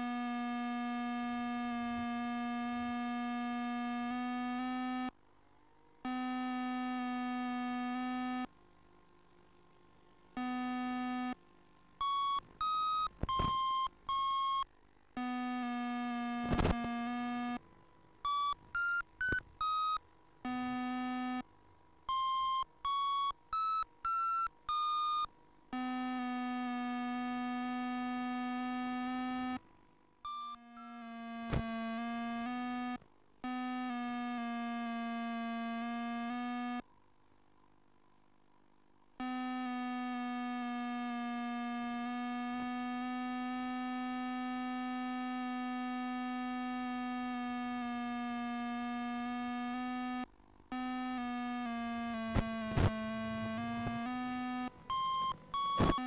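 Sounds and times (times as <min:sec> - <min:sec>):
long low electronic tones: 0:00.0 - 0:05.1, 0:30.3 - 0:36.8, 0:39.2 - 0:56.0.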